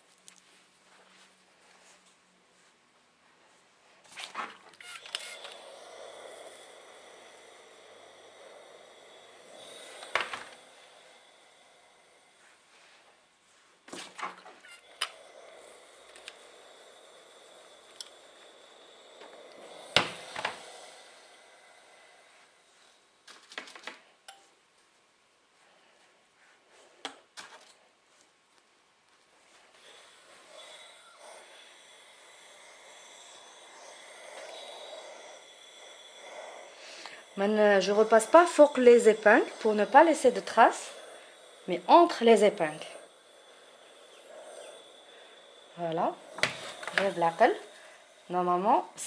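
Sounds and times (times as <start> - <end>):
steam iron hissing: 4.8 - 23.2, 29.5 - 49.0.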